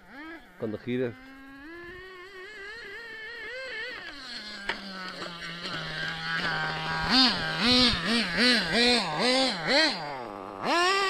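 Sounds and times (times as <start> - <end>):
small nitro engine revving: 0.0 - 11.0.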